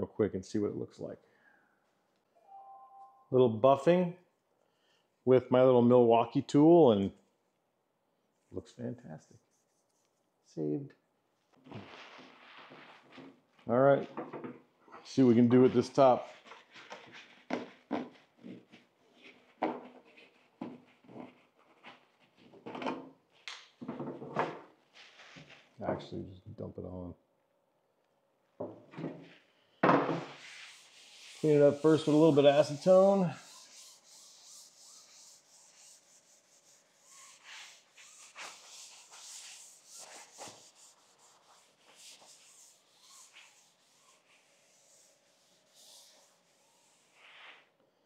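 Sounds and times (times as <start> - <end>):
rag rubbing on table top: 15.7 - 22.6, 30.2 - 47.7
objects knocking on hard surface: 23.8 - 24.6, 28.6 - 30.3.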